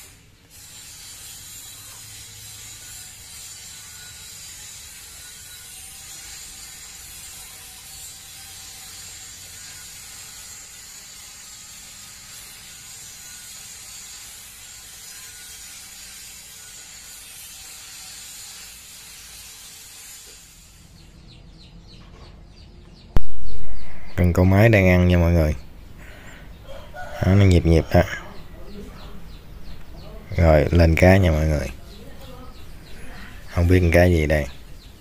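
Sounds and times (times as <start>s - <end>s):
high-pitched insect trilling: 0.5s - 21.0s.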